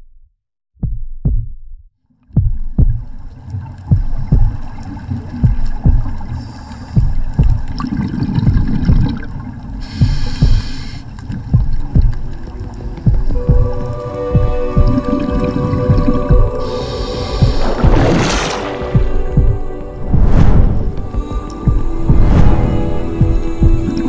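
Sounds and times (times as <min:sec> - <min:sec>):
deep bass thumps: 0:00.8 - 0:03.3, 0:03.9 - 0:04.7, 0:05.4 - 0:06.3, 0:07.0 - 0:09.3, 0:10.0 - 0:10.8, 0:11.5 - 0:12.4, 0:13.0 - 0:13.8, 0:14.4 - 0:15.1, 0:17.4 - 0:24.0
low rumble: 0:02.3 - 0:24.0
short hiss: 0:09.8 - 0:11.1.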